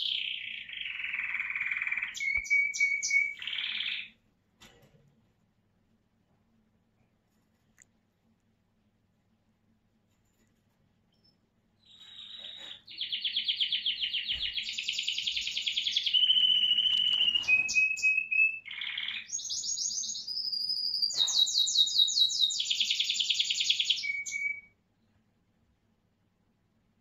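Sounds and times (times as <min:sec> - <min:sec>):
canary singing trills and whistles: 0:00.0 - 0:04.2, 0:11.1 - 0:24.8.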